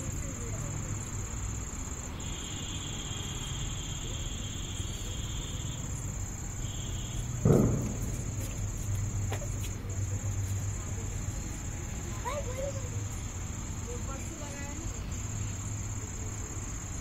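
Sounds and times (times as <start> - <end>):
crickets trilling: 0.0 - 17.0
lower insect trill: 0.0 - 17.0
brief thump: 7.4 - 8.6.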